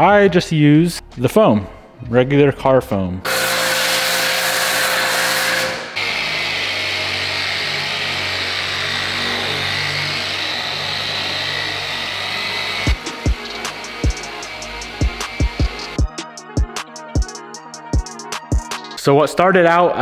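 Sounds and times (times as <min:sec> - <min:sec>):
polisher running on car paint: 0:03.3 - 0:16.0.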